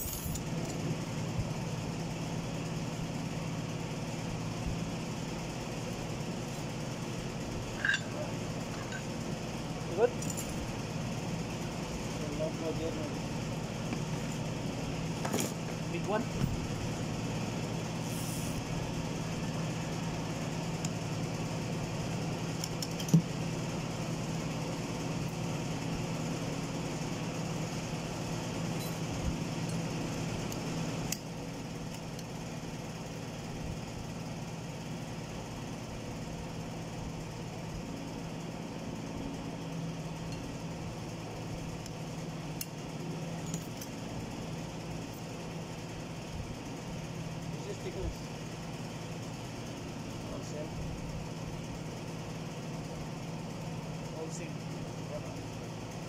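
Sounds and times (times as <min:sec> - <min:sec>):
low mechanical hum: 0:00.0 - 0:56.0
metal parts clicking: 0:07.8 - 0:09.0
sharp metallic clink: 0:07.8 - 0:09.1.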